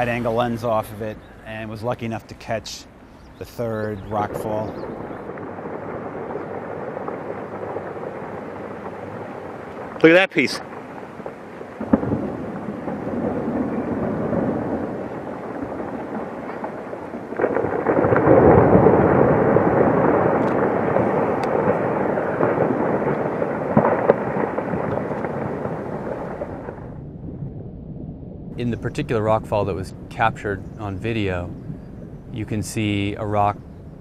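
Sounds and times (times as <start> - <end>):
rockfall rumble: 0.0 - 2.8, 3.5 - 27.4.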